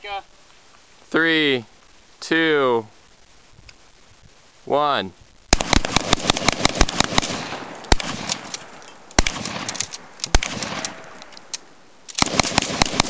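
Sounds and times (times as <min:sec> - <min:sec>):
rapid volley of gunshots: 0:05.5 - 0:11.2, 0:12.2 - 0:13.0
gunshots ringing out: 0:05.5 - 0:11.3, 0:12.1 - 0:13.0.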